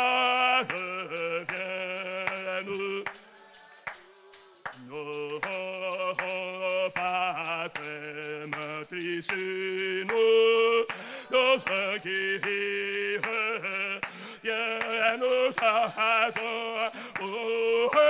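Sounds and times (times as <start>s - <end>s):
man singing a hymn: 0.0s - 3.2s, 4.7s - 18.0s.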